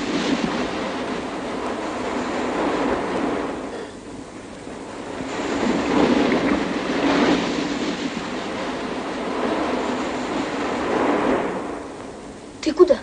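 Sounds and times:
sea surf washing onto beach: 0:00.0 - 0:12.5.

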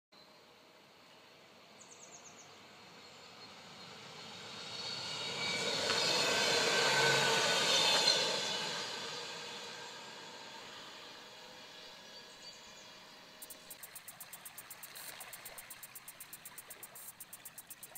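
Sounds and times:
electric train passing: 0:02.6 - 0:17.9
high chirps: 0:13.4 - 0:17.9.

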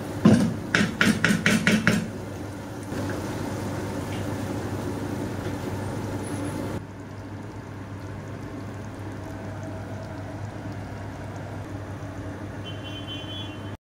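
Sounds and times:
stew bubbling in a pot: 0:00.0 - 0:13.8
low hum: 0:05.8 - 0:12.4.

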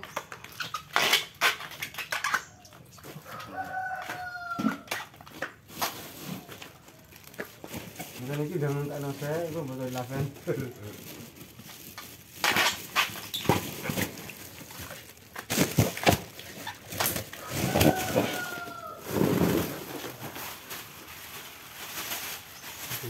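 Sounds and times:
plastic bags crinkling: 0:00.0 - 0:23.0.

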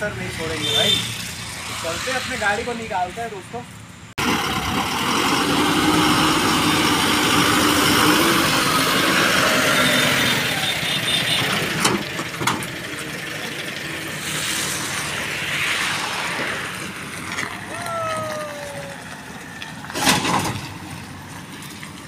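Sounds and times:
diesel truck engine running: 0:03.9 - 0:15.5.

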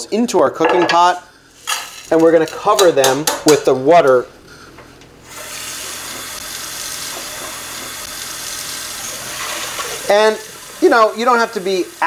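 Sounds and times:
kitchen tap running: 0:05.3 - 0:12.0.

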